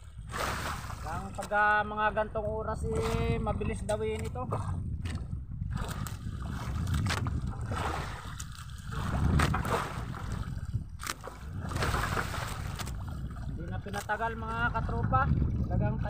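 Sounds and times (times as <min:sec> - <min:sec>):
low steady rumble: 0:00.0 - 0:16.0
water sloshing against boat hull: 0:00.0 - 0:16.0
knocks on boat: 0:08.9 - 0:13.0.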